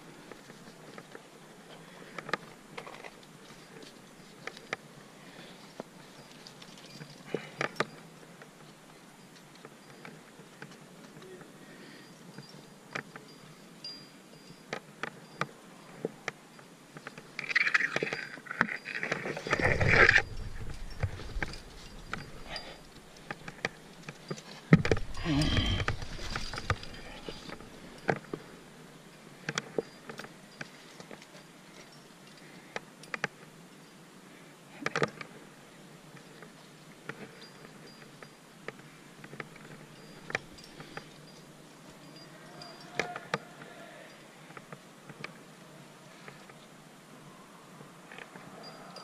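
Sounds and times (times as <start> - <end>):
rustling and scraping: 0.0 - 11.3, 14.7 - 33.4
metal climbing gear clinking: 0.2 - 46.7, 48.0 - 49.0.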